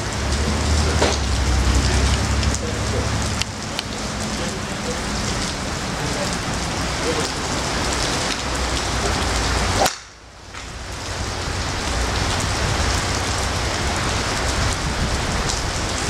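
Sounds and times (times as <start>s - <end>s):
steady rain: 0.0s - 16.0s
golf club striking ball: 9.7s - 10.7s.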